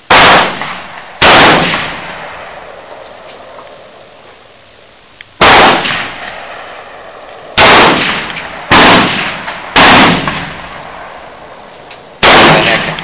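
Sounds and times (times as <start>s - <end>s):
loud gunshots: 0.0s - 2.8s, 5.4s - 7.0s, 7.6s - 11.4s, 12.2s - 13.0s.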